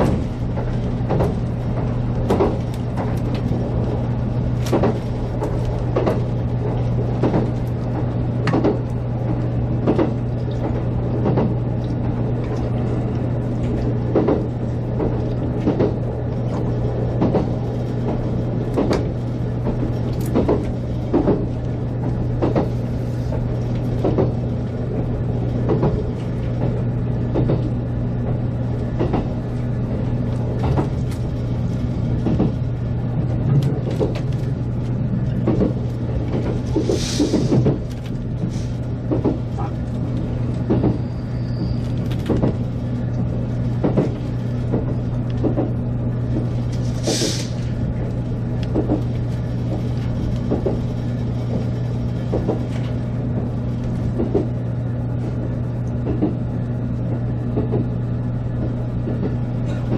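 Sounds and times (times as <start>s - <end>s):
wheels clacking on track: 0.0s - 54.6s
electric train hum: 0.0s - 59.9s
brief hisses: 47.0s - 47.6s.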